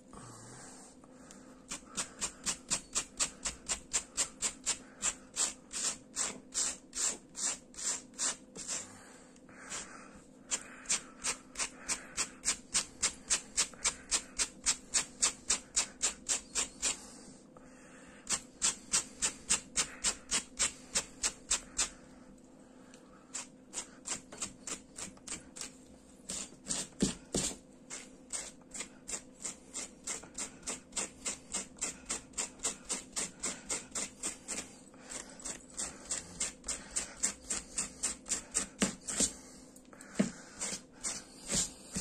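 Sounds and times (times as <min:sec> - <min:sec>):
brush scratching through yarn: 0:01.7 - 0:09.0, 0:09.6 - 0:17.2, 0:18.3 - 0:22.0, 0:23.3 - 0:39.5, 0:40.1 - 0:42.0.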